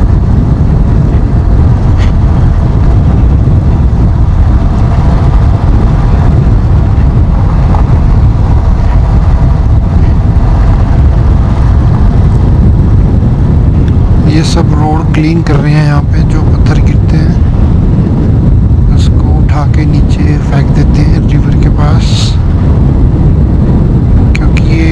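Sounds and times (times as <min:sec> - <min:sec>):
motorcycle engine running: 0:00.0 - 0:14.9
wind rumble on microphone: 0:00.0 - 0:24.9.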